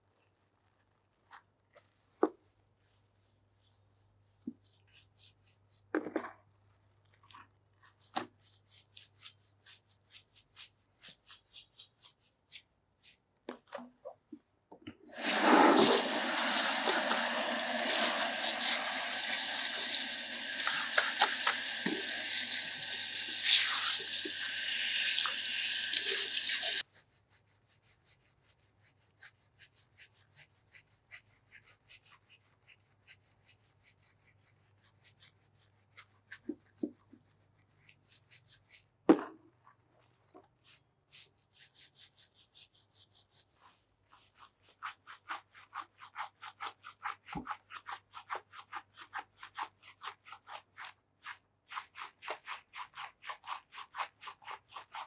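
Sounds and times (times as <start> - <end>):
fingers scrubbing wet hair: 6.9 - 13.7, 15.1 - 39.0, 40.5 - 55.0
water spraying over hair: 15.1 - 26.8.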